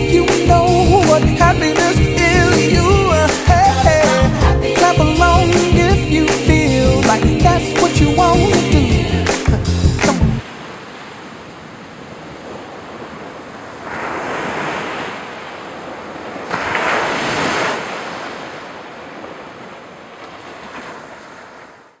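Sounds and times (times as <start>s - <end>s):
ocean surf: 0.0s - 22.0s
waves breaking: 10.4s - 22.0s.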